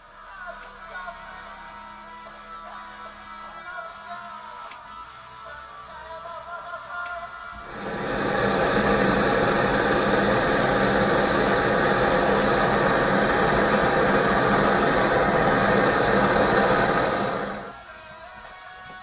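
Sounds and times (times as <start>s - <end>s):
blowtorch hissing: 7.6s - 17.8s.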